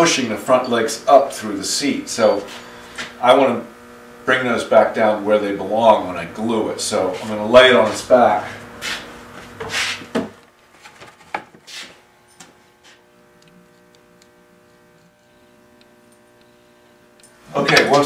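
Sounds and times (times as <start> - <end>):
faint steady hum: 0.0 - 9.6, 10.2 - 18.0
wood knocking and scraping: 9.3 - 12.6.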